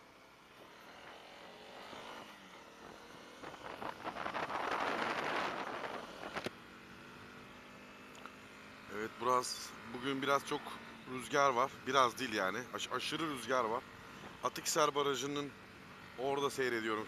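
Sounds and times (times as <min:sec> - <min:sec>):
motorcycle engine accelerating: 0:00.5 - 0:11.9
wind buffeting microphone: 0:03.4 - 0:06.5.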